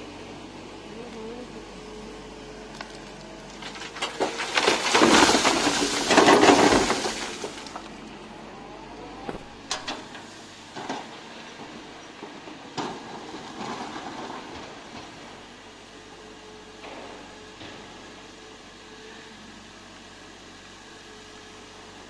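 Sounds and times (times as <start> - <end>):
excavator engine hum: 0.0 - 22.0
dirt and rocks dumped into truck: 2.9 - 8.2, 9.2 - 15.4.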